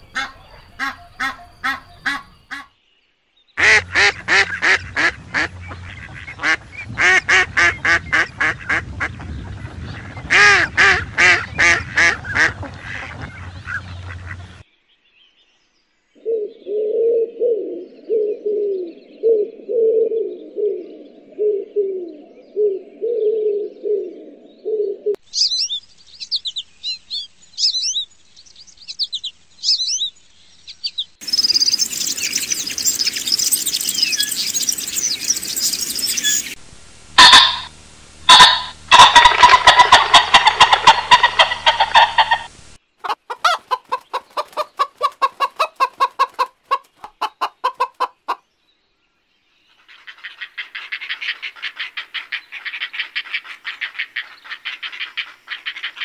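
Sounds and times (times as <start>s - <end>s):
ducks quacking: 0.0s - 2.7s, 3.6s - 14.6s, 37.2s - 37.7s, 38.3s - 48.4s
small birds chirping: 0.0s - 10.3s, 25.2s - 36.6s, 42.8s - 56.0s
pigeons cooing: 16.2s - 25.2s
swallows twittering: 28.7s - 36.6s.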